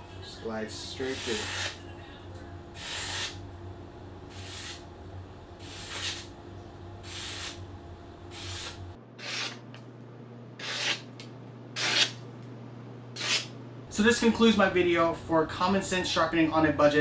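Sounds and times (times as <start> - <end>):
knife slicing paper: 5.6 - 6.3.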